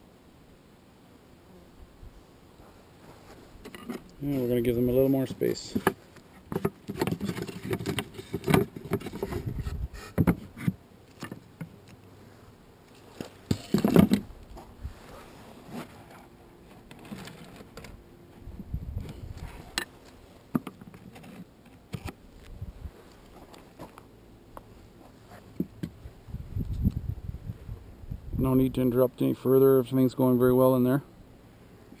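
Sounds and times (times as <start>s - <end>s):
wooden bars knocking and scraping: 5.7s - 11.8s, 13.2s - 14.3s, 20.5s - 22.2s.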